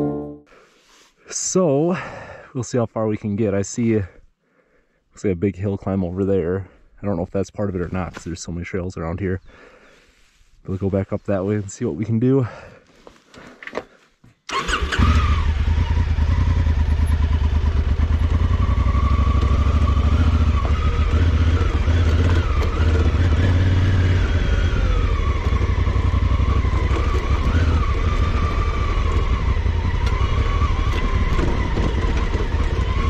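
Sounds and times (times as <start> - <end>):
motorcycle engine running: 15.0 - 33.0.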